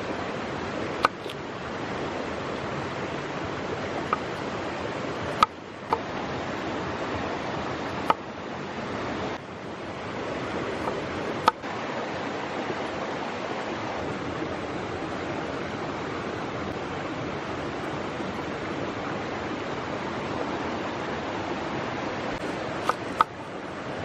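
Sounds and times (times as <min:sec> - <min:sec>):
waterfall and river rushing: 0:00.0 - 0:24.0
knife striking wooden board: 0:01.0 - 0:01.4, 0:04.1 - 0:04.4, 0:05.3 - 0:05.5, 0:22.8 - 0:23.3.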